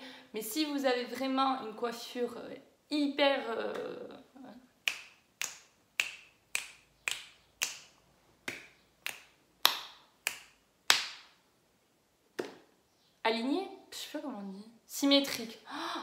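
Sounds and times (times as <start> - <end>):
fingers snapping: 4.8 - 11.3.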